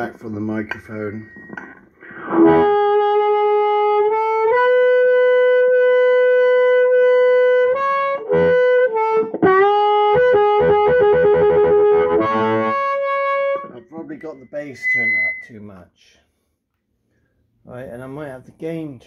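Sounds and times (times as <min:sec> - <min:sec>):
amplified harmonica notes: 0:02.0 - 0:15.6.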